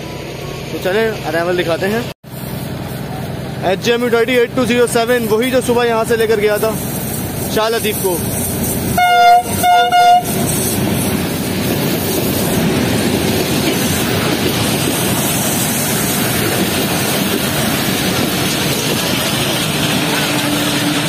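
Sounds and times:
train wheels rumbling on rails: 0.0s - 21.0s
locomotive horn toot: 9.0s - 10.6s.

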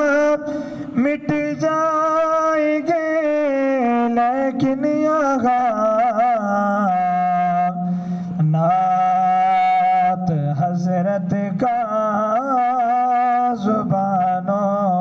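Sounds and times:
man singing unaccompanied: 0.0s - 15.0s.

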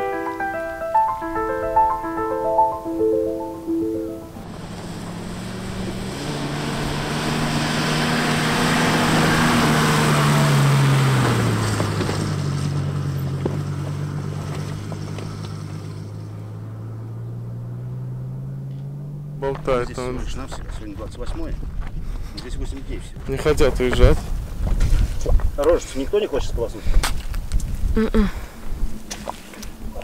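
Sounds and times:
engine pulling under load: 4.4s - 20.2s.

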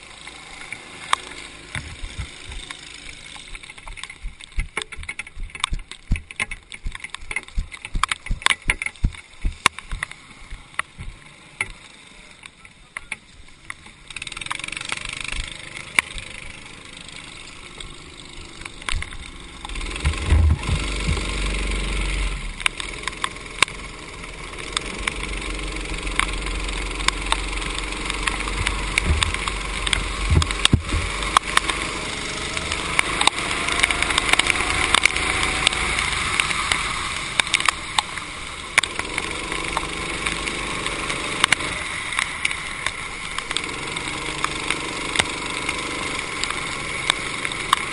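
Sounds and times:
racing kart engine: 0.0s - 47.9s
raindrops ticking: 0.0s - 47.9s
water spray hissing off tarmac: 14.1s - 47.9s.

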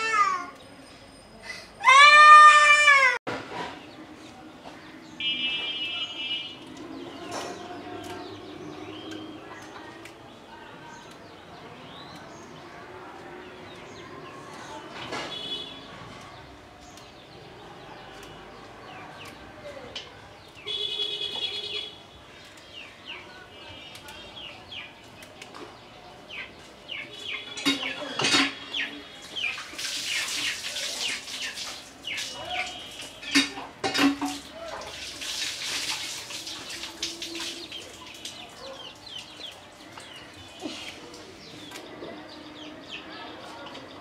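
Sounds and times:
small birds chirping: 3.8s - 33.6s, 34.9s - 44.0s
leaves rustling: 29.2s - 33.3s, 34.4s - 41.8s.

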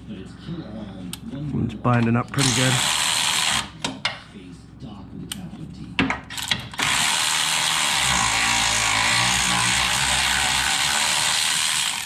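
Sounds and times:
electric ratchet spinning nut: 2.4s - 3.7s, 6.3s - 12.0s.

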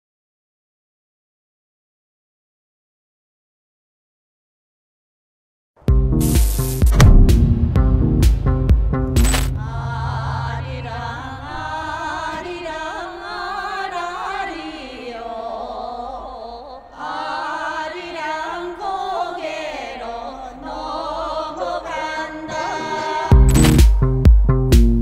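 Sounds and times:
women singing unaccompanied: 9.6s - 23.7s.

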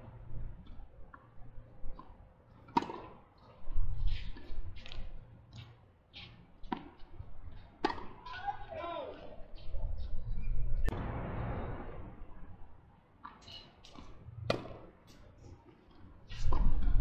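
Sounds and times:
tennis ball struck by racket: 2.7s - 3.2s, 7.8s - 8.2s, 13.9s - 14.9s.

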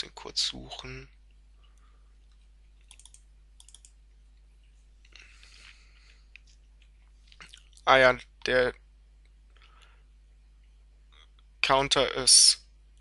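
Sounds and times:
low mains hum: 0.0s - 13.0s
mouse and keyboard clicking: 2.3s - 4.0s.

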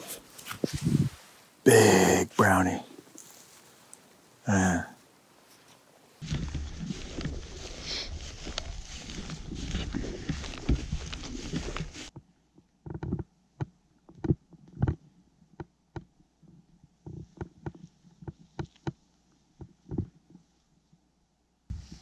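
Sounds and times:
dry grass brushing against clothing: 0.0s - 12.2s, 21.7s - 22.0s
footfalls on grass: 5.4s - 12.2s.

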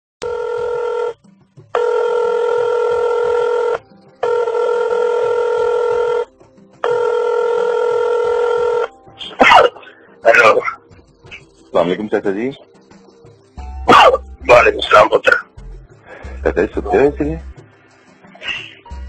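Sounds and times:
telephone ringing tone: 0.2s - 9.0s.

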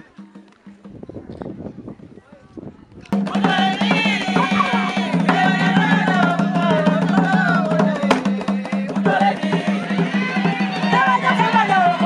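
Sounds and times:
wooden hand drums beating: 3.1s - 12.0s
women singing: 3.2s - 12.0s.

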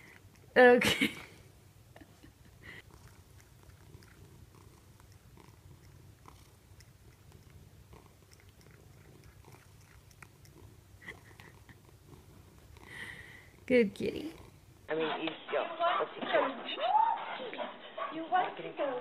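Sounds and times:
cat mouth clicks: 2.9s - 11.8s.

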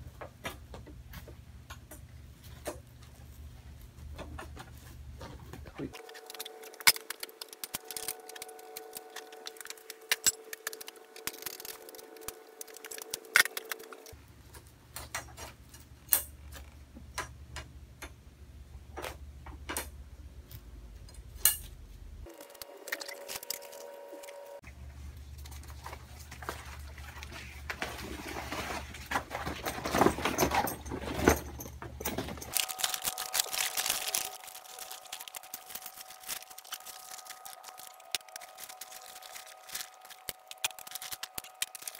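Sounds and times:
metal poles clinking and knocking: 28.5s - 33.0s.

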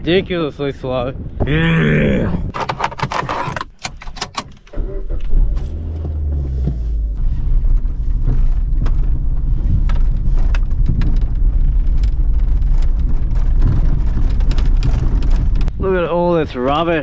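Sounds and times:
car engine starting: 2.5s - 15.7s
car driving over gravel: 5.8s - 17.0s.

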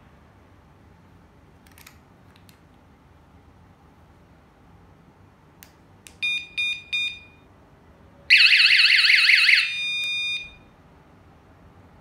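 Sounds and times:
alarm beeping: 6.2s - 7.4s, 8.3s - 10.7s
alarm siren warbling wail: 8.3s - 10.5s.

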